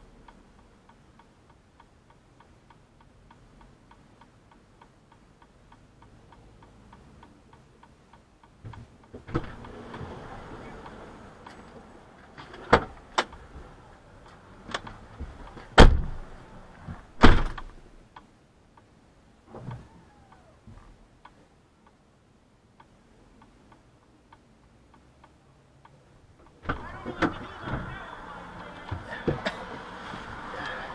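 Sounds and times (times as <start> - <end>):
faint even ticking: 0.0 - 12.2, 17.6 - 26.6
truck doors shutting: 9.2 - 10.2, 15.6 - 16.3, 16.9 - 17.7.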